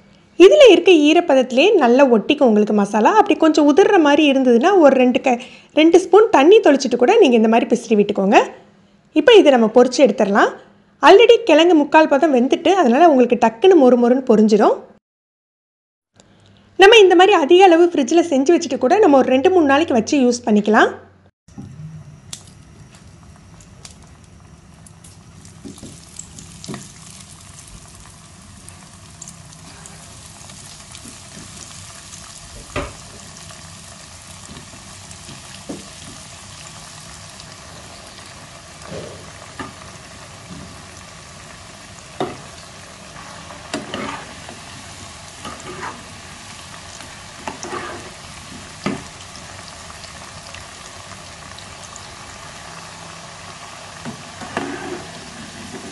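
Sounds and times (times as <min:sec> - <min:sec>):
food sizzling in hot oil: 0:23.2 - 0:55.9.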